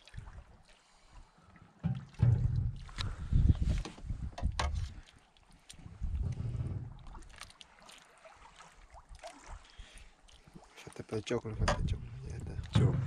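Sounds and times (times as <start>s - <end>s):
low gusty rumble: 2.2s - 4.8s, 5.9s - 7.2s.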